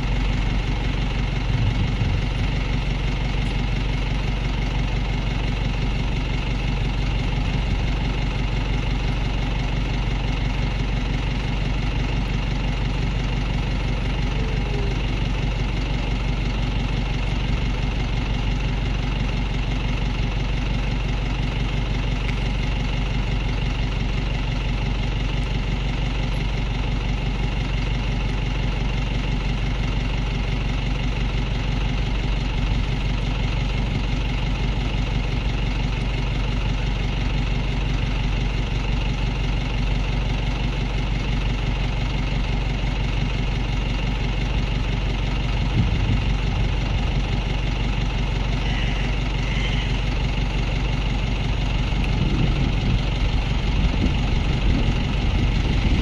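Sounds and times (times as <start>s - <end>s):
engine idling: 0.0s - 56.0s.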